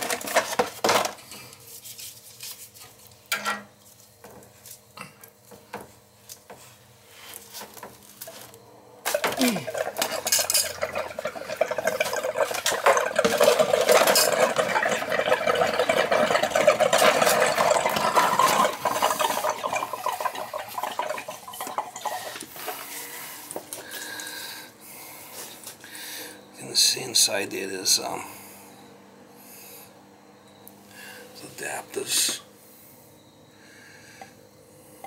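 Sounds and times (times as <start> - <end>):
tools clattering on tile floor: 0.0 - 1.5, 3.3 - 4.8, 7.5 - 24.3.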